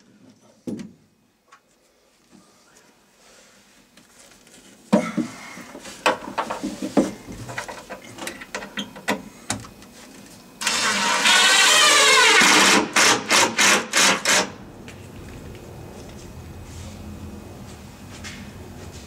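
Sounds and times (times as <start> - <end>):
impact driver driving screw: 10.6 - 14.5.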